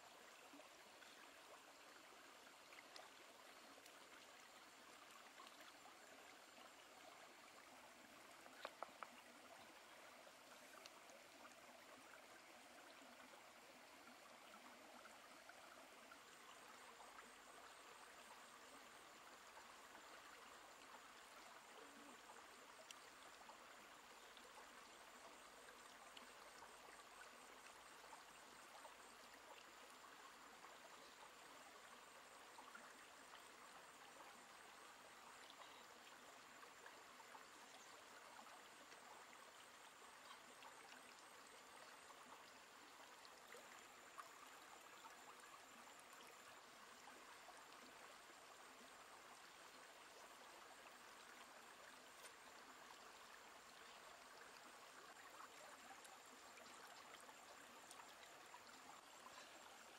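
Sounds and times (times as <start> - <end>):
stream running over rocks: 0.0 - 59.9
small click: 8.5 - 9.1.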